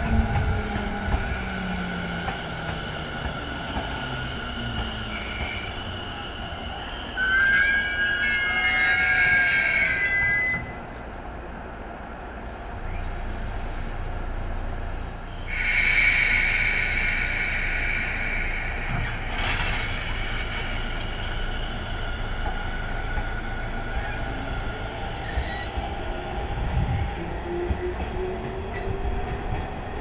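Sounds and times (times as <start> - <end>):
train running rumble: 0.0 - 7.2, 11.0 - 30.0
steel wheels grinding on rail: 0.0 - 11.0, 12.5 - 30.0
train wheels squealing: 1.0 - 11.1, 15.3 - 26.4.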